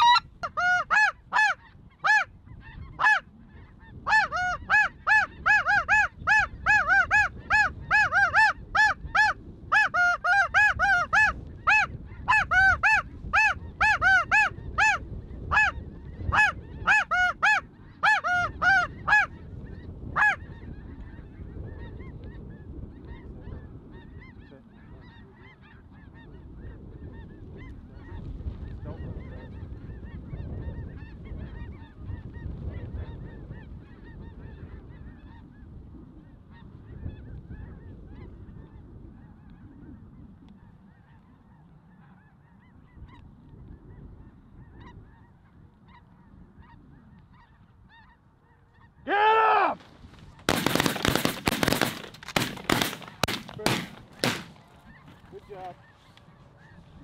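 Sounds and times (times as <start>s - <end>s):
snow goose yelping honks: 0.0s - 22.1s, 44.7s - 49.8s
faint distant bird calls: 38.7s - 57.0s.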